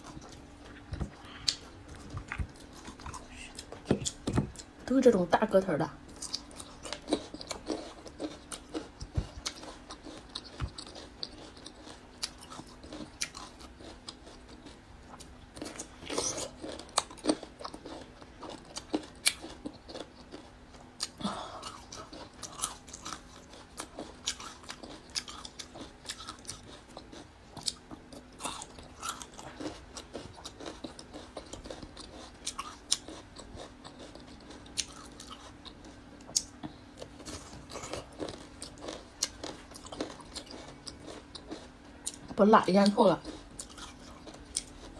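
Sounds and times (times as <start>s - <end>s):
crisp chewing crunches: 6.1s - 44.9s.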